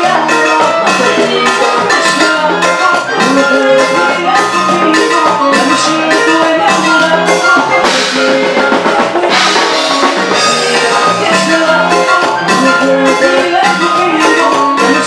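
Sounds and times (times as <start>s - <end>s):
drum-kit beat: 0.0s - 15.0s
latin dance band music: 0.0s - 15.0s.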